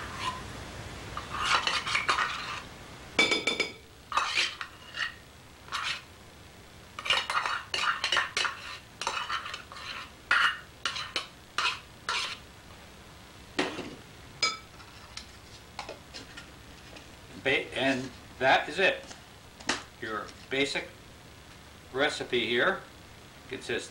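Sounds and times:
spoon scraping glass bowl: 0.0 - 0.4, 1.2 - 2.6, 4.1 - 6.1, 7.0 - 12.4.

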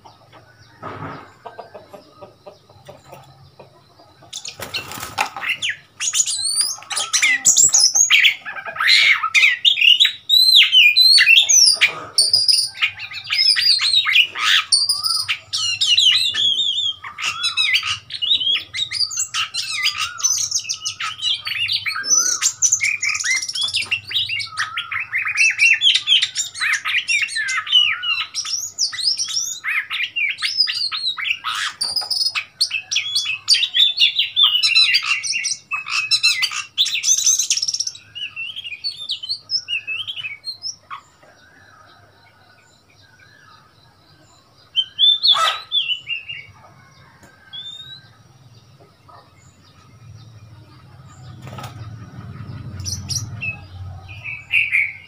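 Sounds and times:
bird singing whistles and chatter: 4.3 - 41.7, 44.7 - 46.5.

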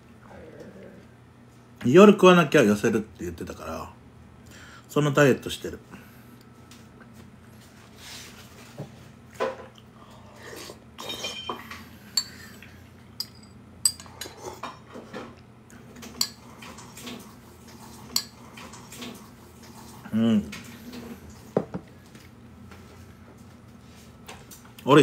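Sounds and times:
metal spoon clinking on ceramic bowl: 13.2 - 14.3.

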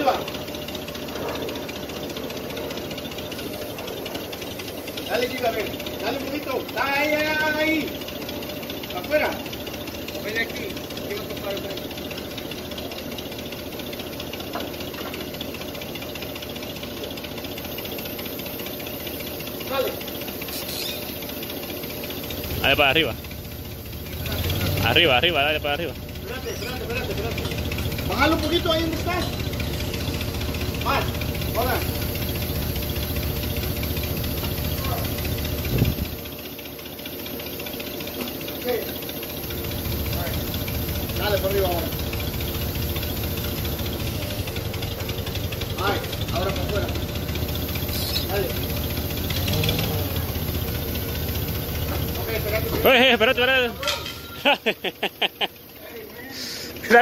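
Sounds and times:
engine idling: 0.0 - 57.0.

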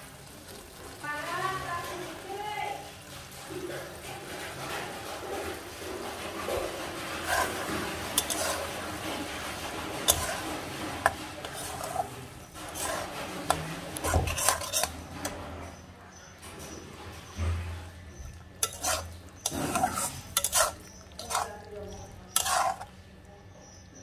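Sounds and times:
metal spatula scraping pan: 6.2 - 15.7, 17.7 - 23.0
spatula clinking against pan: 8.2 - 8.6, 18.3 - 22.9.

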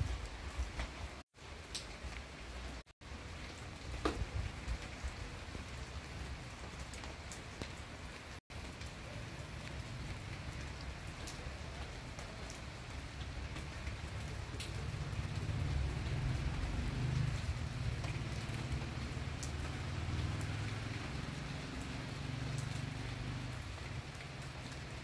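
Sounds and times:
torrential rain: 0.0 - 25.0
water drips and splashes: 0.0 - 25.0.

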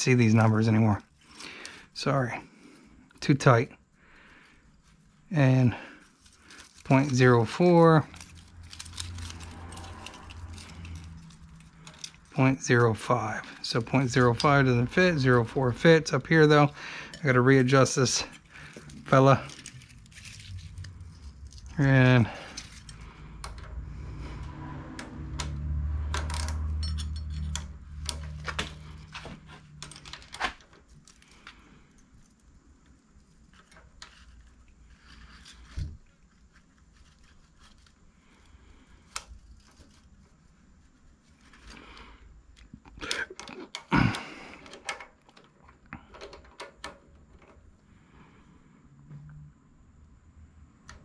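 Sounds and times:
metal hand tools clinking: 8.1 - 12.4, 26.4 - 28.4
low rumble: 19.0 - 29.1.

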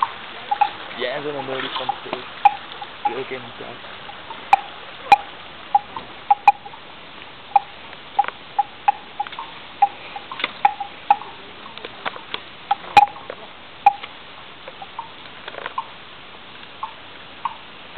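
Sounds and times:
water drops plinking: 0.0 - 6.8, 7.5 - 14.1
steady low hiss: 0.0 - 17.9.

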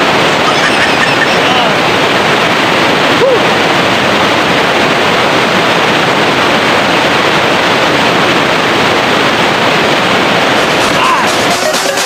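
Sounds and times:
whitewater rushing over rocks: 0.0 - 12.0.

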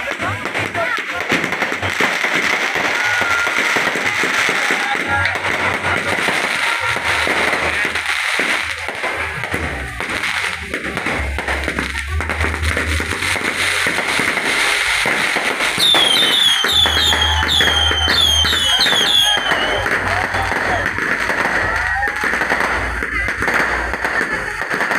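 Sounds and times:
fireworks crackling and popping: 0.0 - 24.9
deep bass music: 5.1 - 24.9.

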